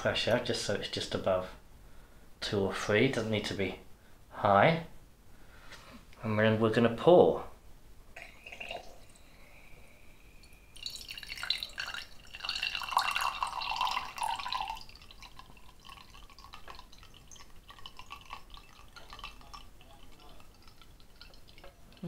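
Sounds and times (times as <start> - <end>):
carbonated water pouring into glass: 8.2 - 9.6, 10.7 - 22.0
drips: 8.2 - 9.7, 10.4 - 22.0.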